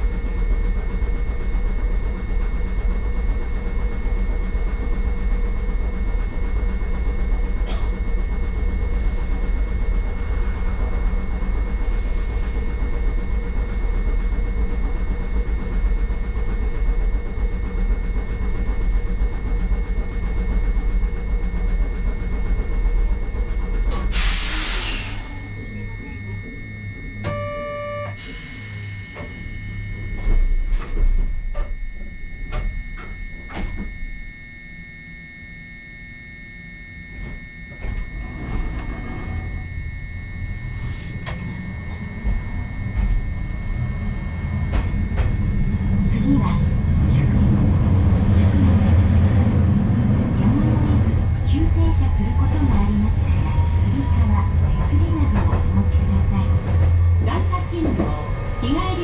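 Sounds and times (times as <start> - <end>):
tram equipment humming: 0.0 - 59.0
air hiss bursts: 24.1 - 25.2
electronic beep: 25.3 - 35.2.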